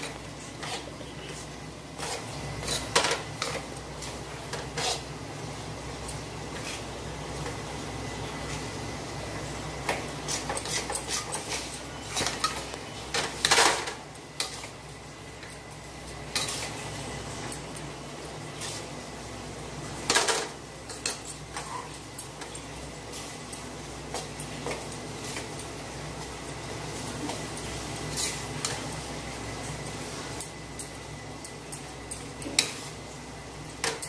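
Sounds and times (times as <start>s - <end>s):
metal spatula scraping a pan: 0.0s - 3.6s, 4.6s - 5.1s, 10.2s - 12.6s, 28.0s - 28.8s.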